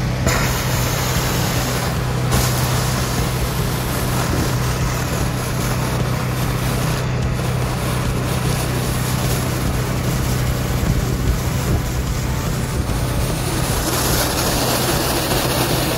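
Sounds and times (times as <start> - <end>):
engine humming: 0.0 - 15.9
suction hose slurping water: 0.0 - 15.9.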